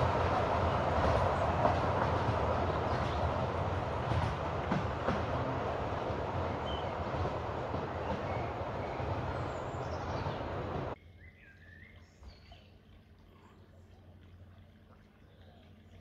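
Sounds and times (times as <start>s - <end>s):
steam train wheels rumbling on rails: 0.0s - 11.0s.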